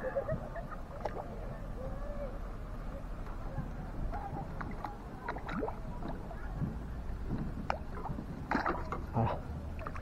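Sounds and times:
fish splashing in water: 0:04.1 - 0:06.5, 0:07.6 - 0:10.0.

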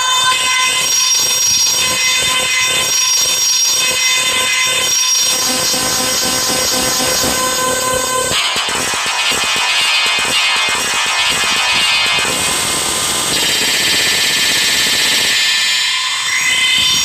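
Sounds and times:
dense synthesized piano notes: 0:05.4 - 0:13.2.

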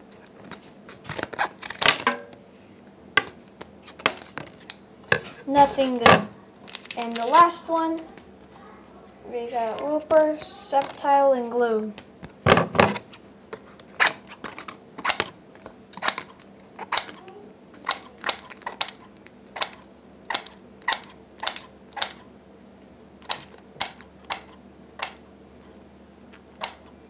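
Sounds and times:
trading cards snapping and flicking: 0:16.0 - 0:17.2.

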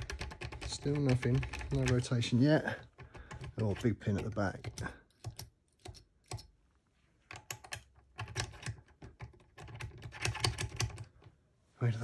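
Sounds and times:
small metallic clicks and taps: 0:03.0 - 0:06.5.

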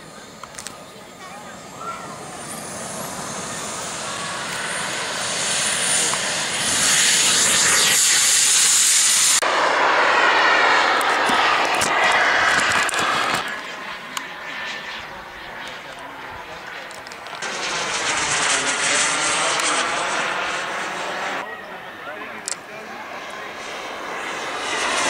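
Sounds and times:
model jet engine hissing: 0:01.4 - 0:13.8, 0:17.4 - 0:21.4, 0:23.2 - 0:25.0.

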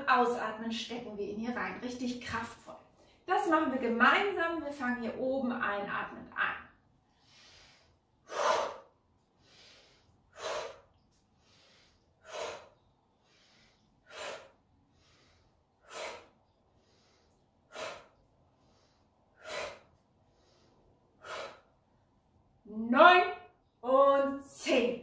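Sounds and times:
woman breathing forcefully: 0:07.1 - 0:22.1.

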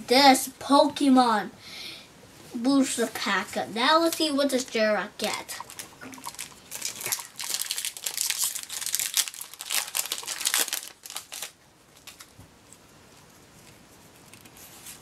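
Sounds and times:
foil wrapper crinkling and tearing: 0:05.5 - 0:12.4.

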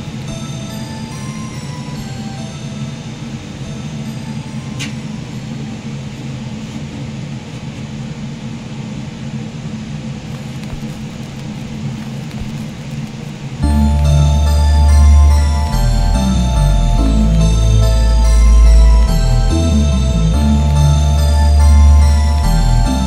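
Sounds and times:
low mechanical hum: 0:00.0 - 0:23.0
loud music: 0:13.6 - 0:23.0.

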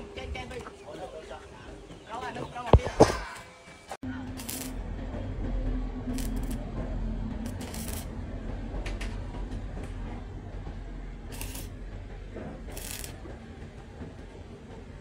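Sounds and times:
steady low hum: 0:04.0 - 0:15.0.

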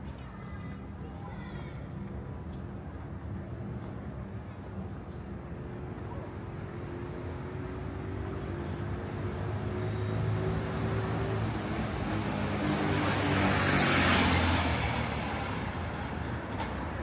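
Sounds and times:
vehicle passing on street: 0:06.2 - 0:17.0.

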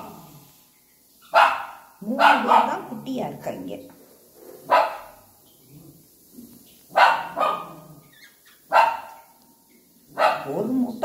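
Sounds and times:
dog barking: 0:01.3 - 0:03.0, 0:04.6 - 0:05.2, 0:06.9 - 0:07.9, 0:08.7 - 0:09.4, 0:10.1 - 0:10.7.

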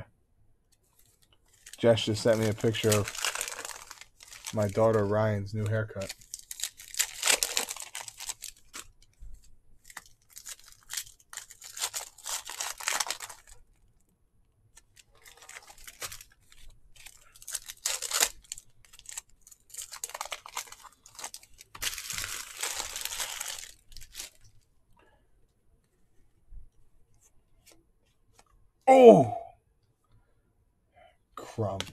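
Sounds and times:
foil wrappers crinkling and tearing: 0:01.0 - 0:09.1, 0:09.8 - 0:13.7, 0:14.8 - 0:24.6.

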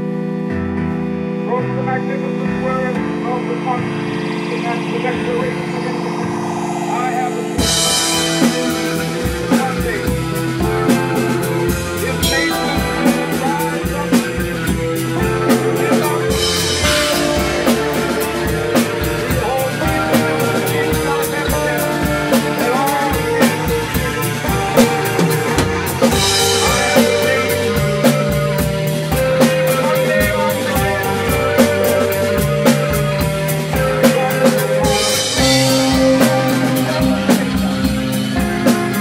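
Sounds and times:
live band playing: 0:00.3 - 0:39.0
drum kit beat: 0:02.6 - 0:39.0
cymbal crashes: 0:04.0 - 0:19.9.

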